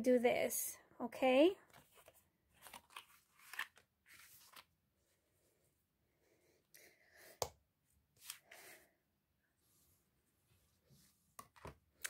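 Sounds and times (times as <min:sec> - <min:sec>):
hands rustling cardstock: 0:01.7 - 0:04.7.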